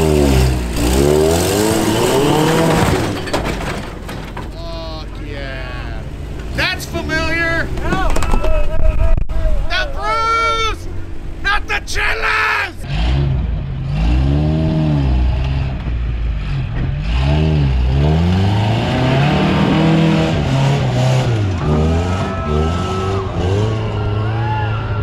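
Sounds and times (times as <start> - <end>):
pickup engine revving hard: 0.0 - 3.2, 12.8 - 15.7, 16.4 - 24.4.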